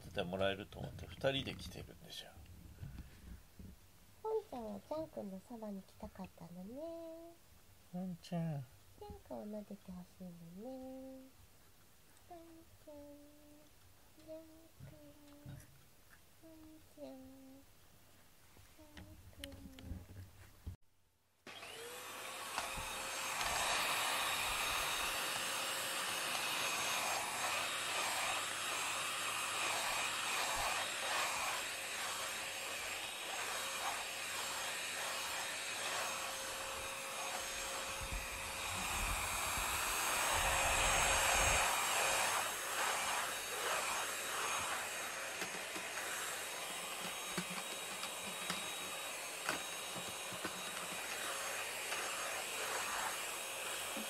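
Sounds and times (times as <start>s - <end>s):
electric motor whining: 21.5s - 54.0s.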